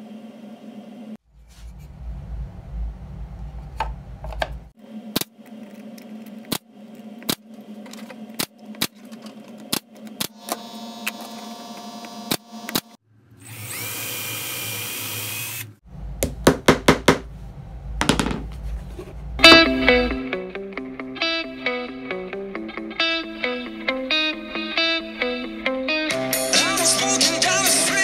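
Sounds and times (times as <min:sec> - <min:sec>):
power drill boring wood: 0:13.4 - 0:15.7.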